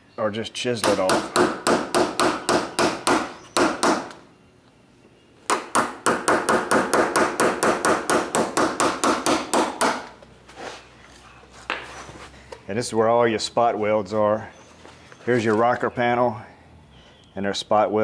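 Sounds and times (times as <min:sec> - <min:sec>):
hammer striking chisel on metal: 0:00.8 - 0:04.2, 0:05.5 - 0:10.1.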